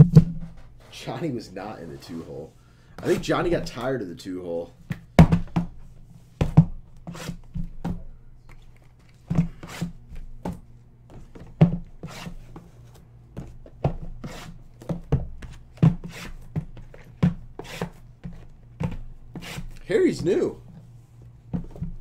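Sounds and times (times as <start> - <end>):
rustling scrapes: 0.6 - 2.6.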